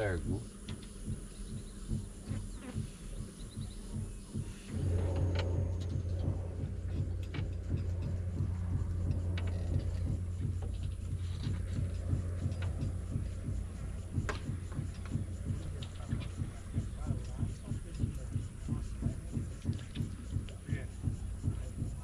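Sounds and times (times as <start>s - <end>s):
low pulsing rumble: 0.0s - 22.0s.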